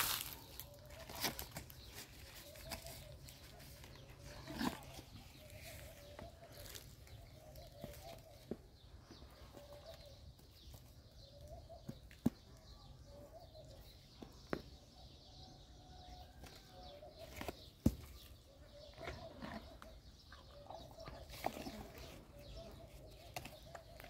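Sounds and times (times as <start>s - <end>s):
horse crunching fruit: 0.0s - 8.4s, 17.2s - 24.0s
horse chewing: 4.1s - 5.9s, 18.9s - 22.4s.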